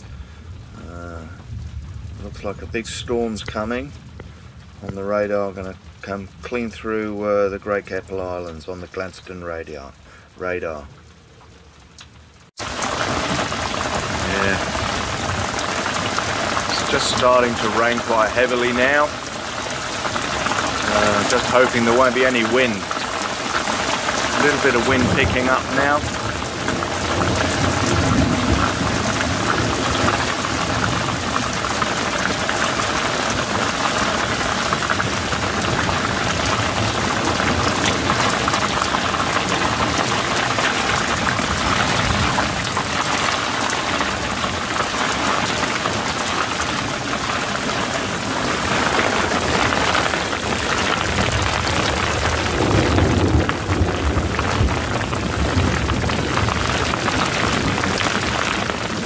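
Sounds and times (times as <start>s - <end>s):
heavy rain on deck and canvas: 0.0s - 59.0s
wind gusting: 12.6s - 59.0s.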